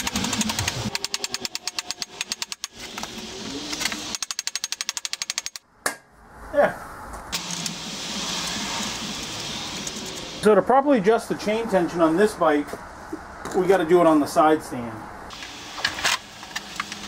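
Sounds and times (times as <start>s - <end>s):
rapid metallic clicking: 0.0s - 2.8s, 4.1s - 5.6s.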